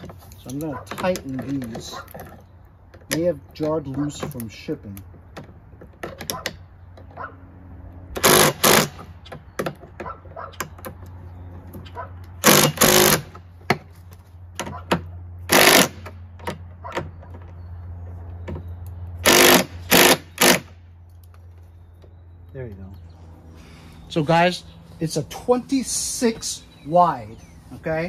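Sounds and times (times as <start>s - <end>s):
impact driver hammering: 8.1s - 11.0s, 12.4s - 13.9s, 14.6s - 17.2s, 19.2s - 20.8s.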